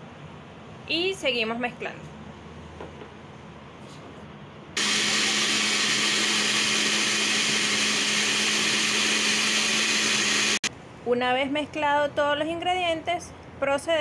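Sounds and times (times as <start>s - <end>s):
blender motor humming: 4.8s - 10.7s.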